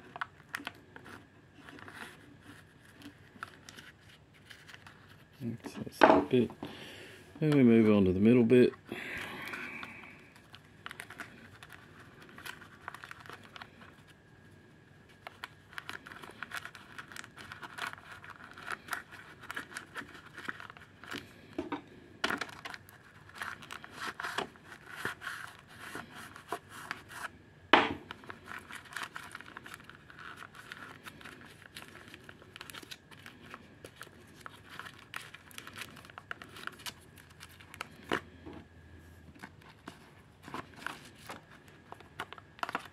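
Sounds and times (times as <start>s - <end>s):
sponge pads crinkling and scratching: 0.0s - 5.6s, 10.2s - 14.2s, 15.1s - 21.6s, 22.4s - 27.4s, 28.1s - 38.4s.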